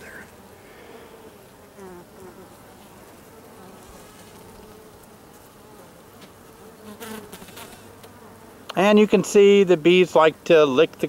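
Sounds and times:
single bee buzzing close by: 0:00.0 - 0:08.8
bees buzzing: 0:00.0 - 0:11.0.

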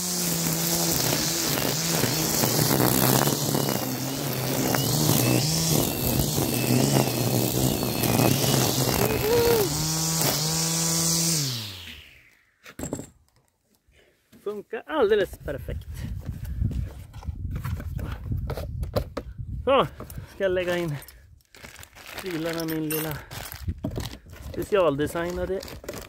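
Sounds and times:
trimmer line whipping grass: 0:00.0 - 0:12.4, 0:21.6 - 0:26.0
electric trimmer motor whine: 0:00.0 - 0:12.5.

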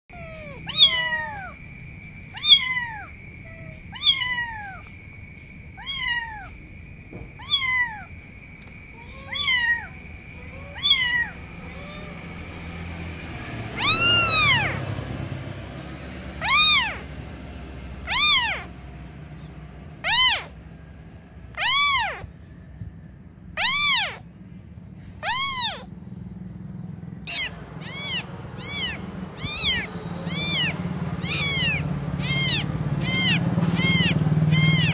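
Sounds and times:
kitten meowing: 0:00.1 - 0:06.6, 0:07.3 - 0:13.1, 0:13.8 - 0:14.8, 0:16.4 - 0:17.0, 0:18.0 - 0:18.7, 0:20.0 - 0:20.6, 0:21.5 - 0:22.3, 0:23.6 - 0:24.2, 0:25.2 - 0:25.9, 0:27.2 - 0:34.9.

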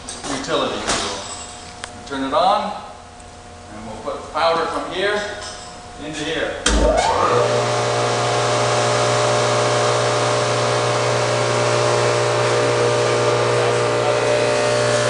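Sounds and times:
industrial vacuum running: 0:06.0 - 0:15.0.

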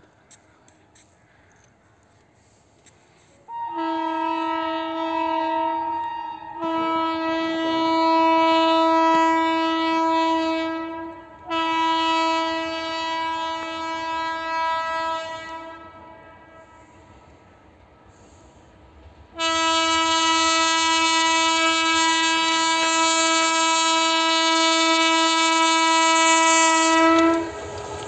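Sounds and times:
locomotive horn blasts: 0:03.5 - 0:17.0, 0:19.4 - 0:27.7.

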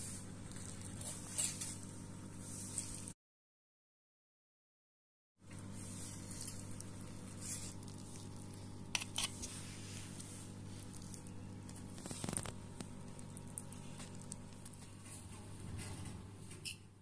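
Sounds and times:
steady low hum: 0:05.4 - 0:17.0
wet squishing of hands in meat: 0:05.6 - 0:15.1.

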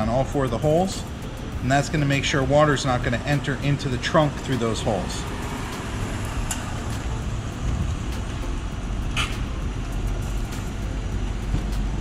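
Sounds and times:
low background rumble: 0:05.2 - 0:12.0.

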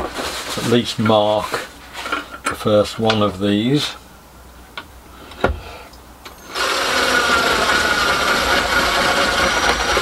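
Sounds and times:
drill click: 0:06.2 - 0:10.0
cordless drill running: 0:06.3 - 0:10.0.

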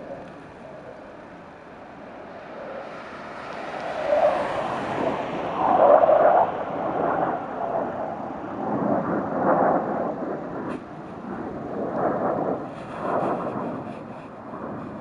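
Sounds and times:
jet engines rumbling: 0:00.0 - 0:15.0.

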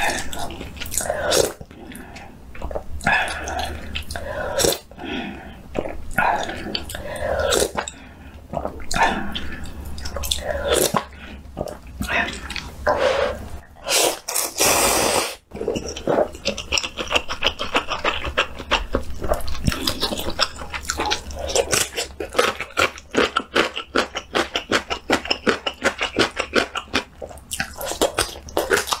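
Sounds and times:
slurping noodles: 0:12.2 - 0:18.6.

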